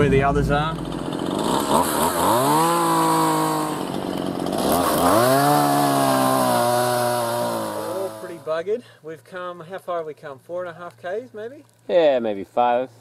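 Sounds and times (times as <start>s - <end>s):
chainsaw cutting log: 0.5s - 8.6s.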